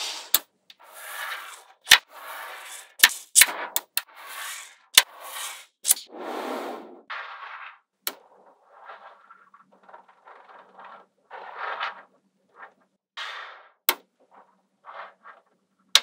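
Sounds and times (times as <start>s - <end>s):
magnetic balls snapping together: 3.0s - 4.1s.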